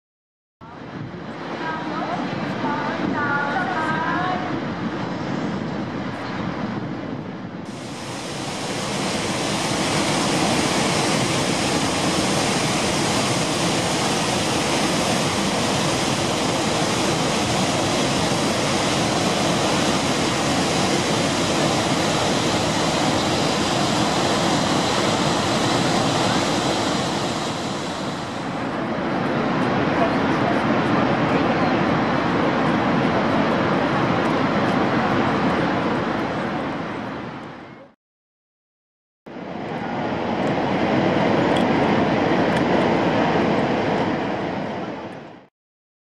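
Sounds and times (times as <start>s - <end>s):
waterfall rushing: 7.7s - 29.2s.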